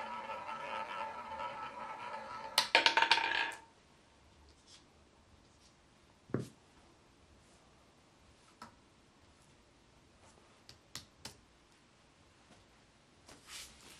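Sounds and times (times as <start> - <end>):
roulette ball rolling and clattering: 0.0 - 3.7.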